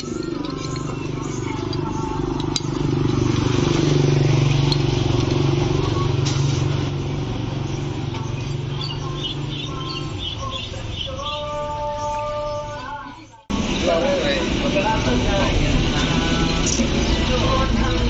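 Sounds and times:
metal scoop clinking on jar: 0:00.0 - 0:03.3
vehicle engine passing: 0:00.0 - 0:12.5, 0:13.5 - 0:18.0.

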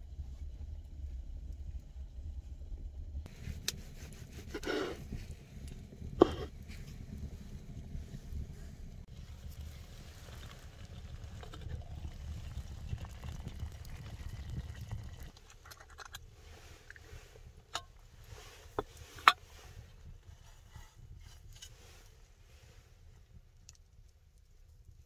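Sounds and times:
low rumble: 0:00.0 - 0:23.5
crackling wood fire: 0:00.0 - 0:25.0.

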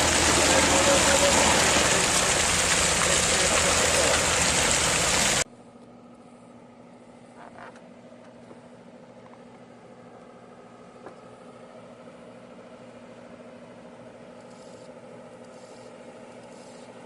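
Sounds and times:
heavy truck driving: 0:00.0 - 0:05.4
low engine hum: 0:00.0 - 0:06.5.

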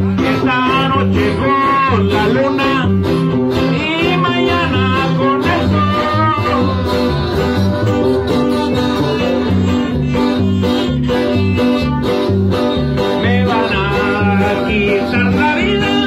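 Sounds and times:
plucked guitar rhythm: 0:00.0 - 0:16.0
violin melody: 0:06.6 - 0:12.9.

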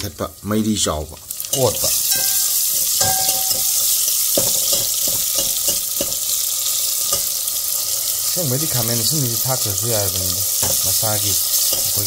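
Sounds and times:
vegetables sizzling in hot oil: 0:00.0 - 0:12.0
metal spoon scraping a pan: 0:01.4 - 0:08.3, 0:09.8 - 0:12.0.

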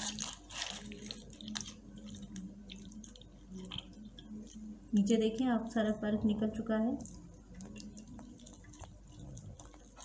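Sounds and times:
faint low hum: 0:00.0 - 0:10.0
liquid dripping into bowl: 0:07.0 - 0:09.9.

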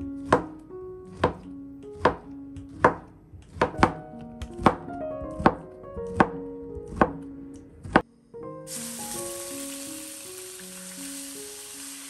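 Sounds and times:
soft background music: 0:00.0 - 0:12.0
knife chopping on cutting board: 0:01.1 - 0:07.2.

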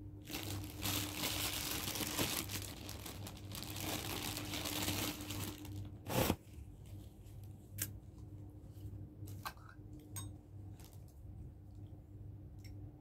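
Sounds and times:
plastic bag crinkling: 0:00.2 - 0:06.4.

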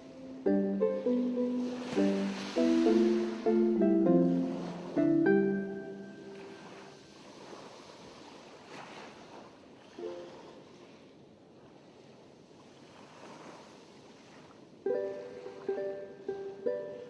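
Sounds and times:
plucked note: 0:00.0 - 0:06.8
faint rushing surf-like noise: 0:00.0 - 0:17.0.

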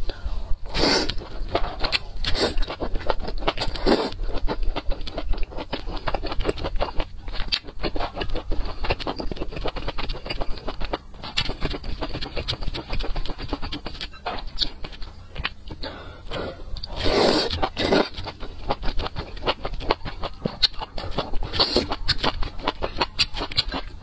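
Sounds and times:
wet chewing: 0:00.6 - 0:24.0
loud noodle slurping: 0:00.7 - 0:01.2, 0:02.2 - 0:04.8, 0:16.4 - 0:19.0.

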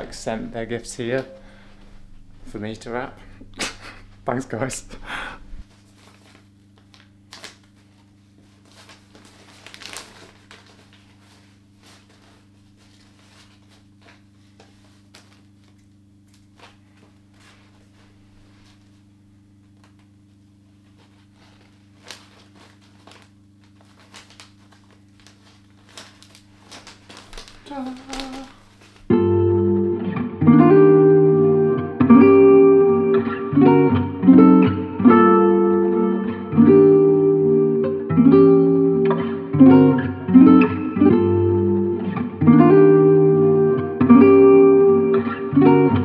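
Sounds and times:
low steady hum: 0:00.0 - 0:44.9
wrapping paper crinkling: 0:05.7 - 0:19.0, 0:19.7 - 0:29.1
clicks and rustles of handling: 0:19.6 - 0:29.1.

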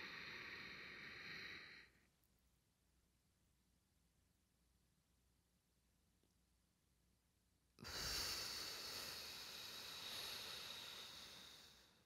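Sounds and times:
woman breathing out: 0:00.0 - 0:01.9, 0:07.8 - 0:12.0.

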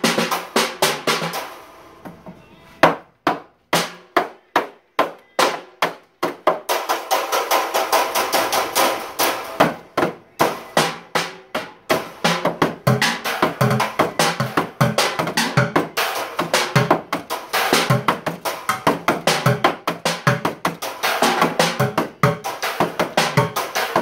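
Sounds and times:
drumsticks beating on bucket drums: 0:00.0 - 0:02.2, 0:02.8 - 0:24.0.

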